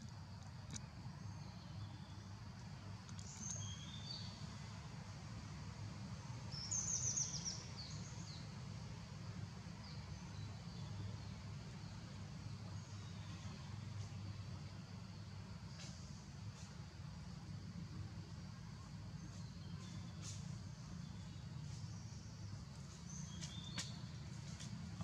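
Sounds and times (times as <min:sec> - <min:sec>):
birds chirping: 0:19.1 - 0:25.0.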